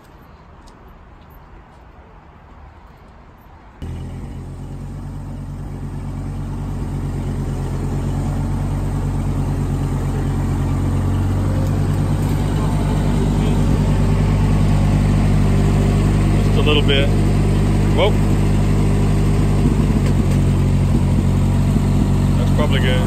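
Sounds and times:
forklift engine running: 0:03.8 - 0:23.0.

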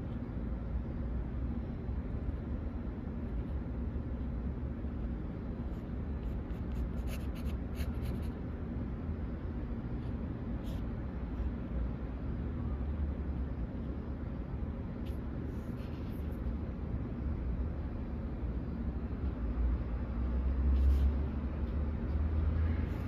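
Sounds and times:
low room hum: 0:00.0 - 0:23.0
pen scratching on paper: 0:05.7 - 0:08.4.

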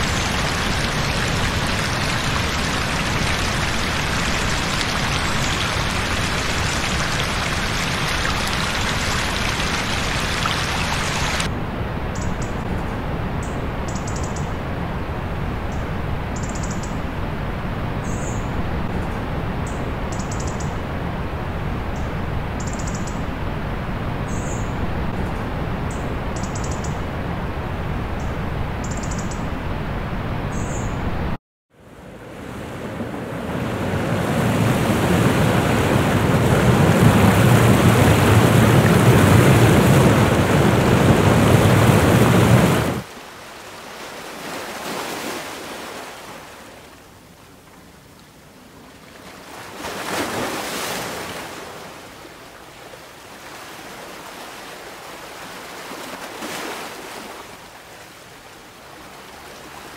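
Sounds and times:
surf washing onto beach: 0:00.0 - 0:11.5, 0:32.0 - 0:46.9
waterfall rushing: 0:00.0 - 0:11.5, 0:34.5 - 0:43.1
small bird chirping: 0:26.4 - 0:27.0.

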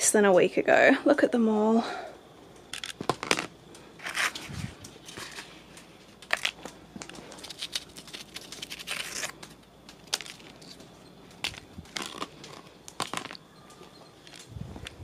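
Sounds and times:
dry leaves crinkling: 0:04.0 - 0:15.0.

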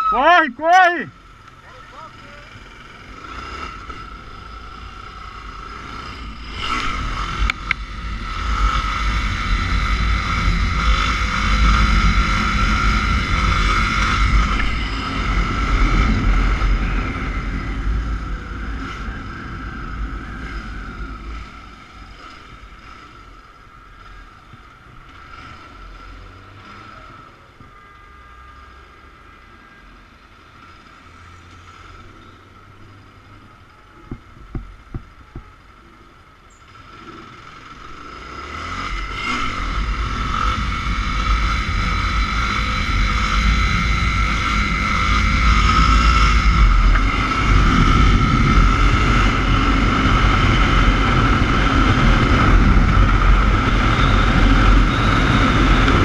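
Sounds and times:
motorcycle engine running: 0:01.1 - 0:28.1, 0:33.0 - 0:56.0
wind rush on microphone: 0:39.6 - 0:56.0.

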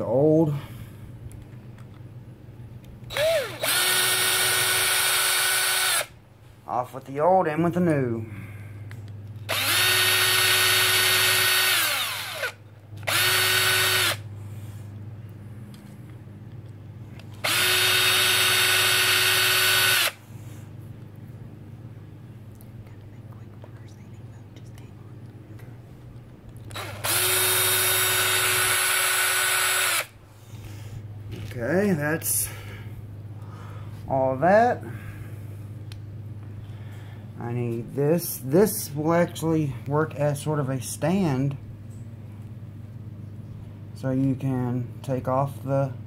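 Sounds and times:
electric drill whining: 0:03.1 - 0:06.2, 0:09.5 - 0:14.2, 0:17.4 - 0:20.2, 0:26.7 - 0:30.2.

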